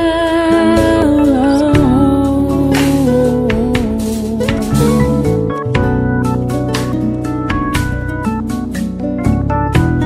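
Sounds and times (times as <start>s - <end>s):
low bass: 0.0s - 10.0s
pitch-bending melody over chords: 4.5s - 10.0s.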